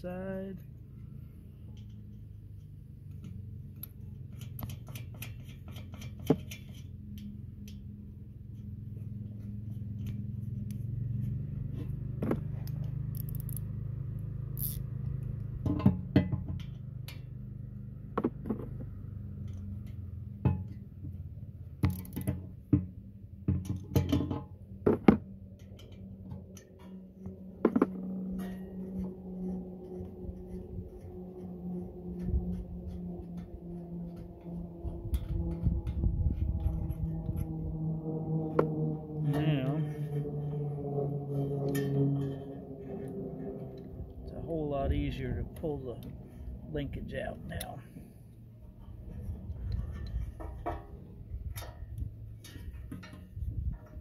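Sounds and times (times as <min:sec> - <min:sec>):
steady low hum: 0:00.0 - 0:54.0
metal clicks of wrench and nuts: 0:12.8 - 0:13.6.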